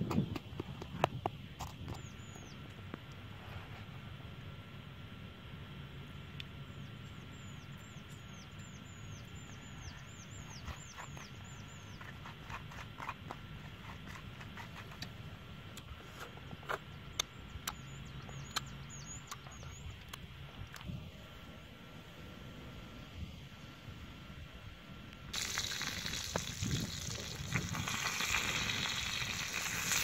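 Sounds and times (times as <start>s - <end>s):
bird chirping: 6.7s - 13.1s, 17.0s - 20.2s.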